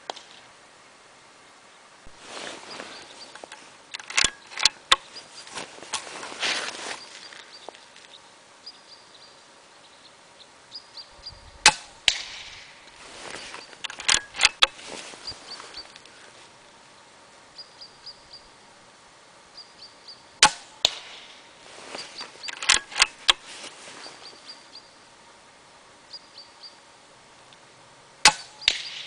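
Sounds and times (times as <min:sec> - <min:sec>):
sharp click: 0:03.4 - 0:05.1, 0:13.6 - 0:14.8, 0:22.4 - 0:23.4, 0:28.3 - 0:29.0
air rifle shots: 0:11.6 - 0:12.9, 0:20.4 - 0:21.5, 0:28.2 - 0:29.0.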